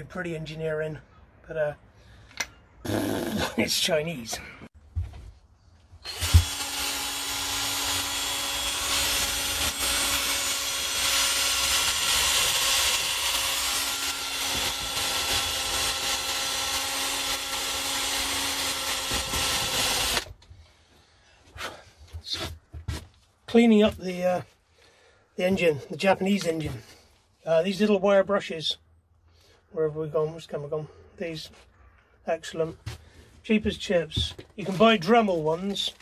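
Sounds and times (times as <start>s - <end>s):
rotary tool motor whine: 6.0s - 20.3s.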